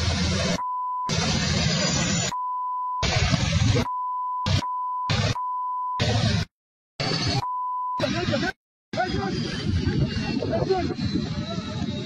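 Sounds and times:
rough outdoor noise: 0.0s - 2.4s, 6.0s - 12.0s
high single-pitch bleep tone: 0.5s - 1.2s, 2.2s - 6.1s, 7.3s - 8.2s.

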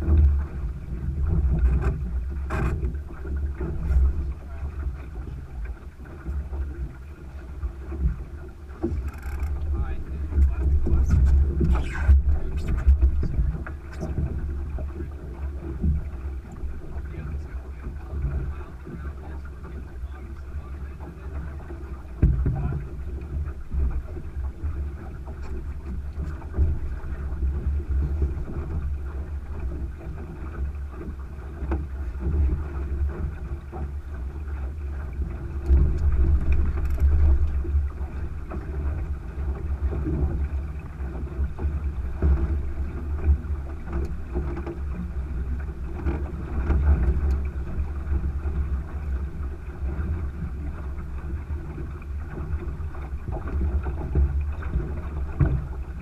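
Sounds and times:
water rushing along hull: 0.0s - 56.0s
wind buffeting microphone: 0.0s - 56.0s.

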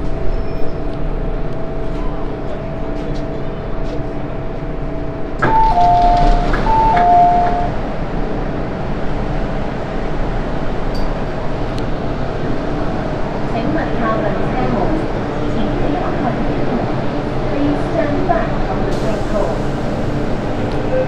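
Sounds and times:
train equipment hum: 0.0s - 21.0s
train door release click: 5.4s - 7.8s.

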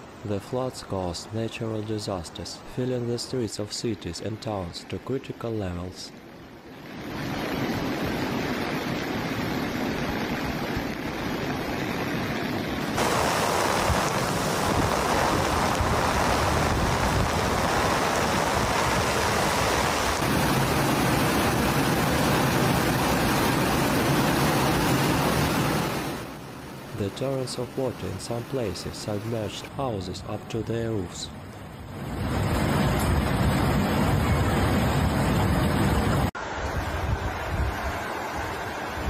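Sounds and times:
floodwater rushing: 6.8s - 30.7s, 31.3s - 39.0s.

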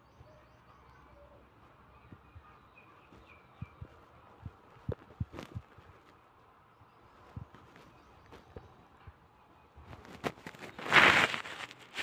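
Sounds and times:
faint bird chirps: 0.0s - 4.5s.

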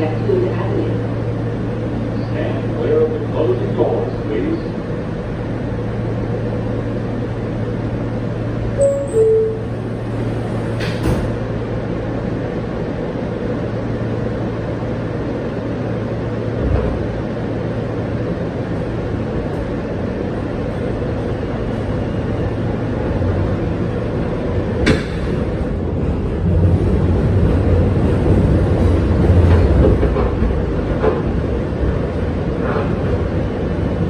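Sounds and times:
door chime: 8.8s - 9.8s.

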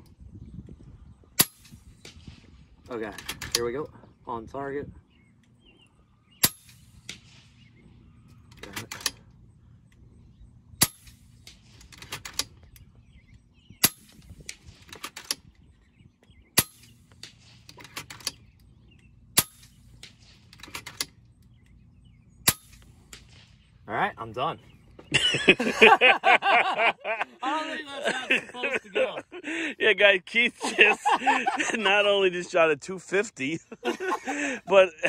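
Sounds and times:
air rifle shots: 1.4s - 3.6s, 6.4s - 9.2s, 10.8s - 12.8s, 13.8s - 15.6s, 16.5s - 18.6s, 19.3s - 21.2s, 22.4s - 23.8s
mechanical clicks of rifle action: 13.8s - 15.6s, 16.8s - 21.8s.

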